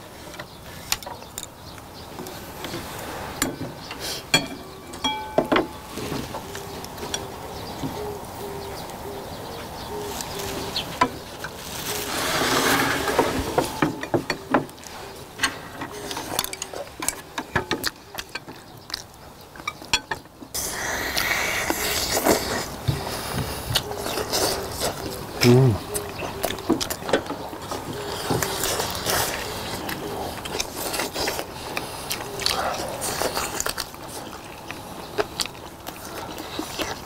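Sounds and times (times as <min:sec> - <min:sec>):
people chewing and slurping: 0:00.0 - 0:37.0
chopsticks clicking on bowls: 0:13.6 - 0:20.3.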